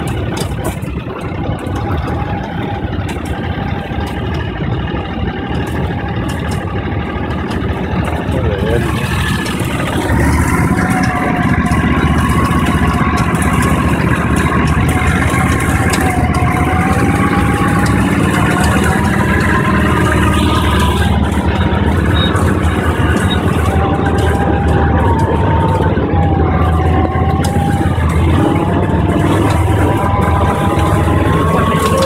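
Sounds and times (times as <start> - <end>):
atv engine whining: 0.0 - 32.0.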